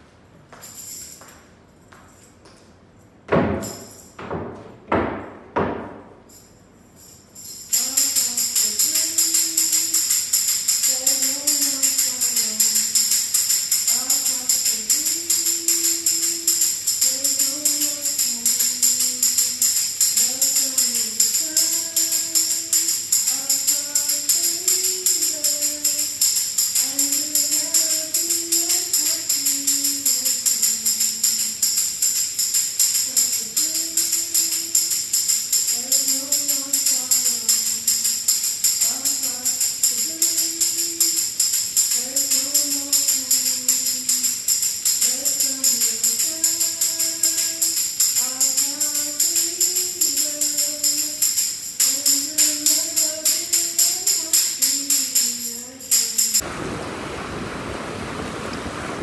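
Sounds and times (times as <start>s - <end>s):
tambourine jingling: 0.0s - 4.3s, 5.9s - 56.4s
woman singing softly: 7.7s - 56.4s.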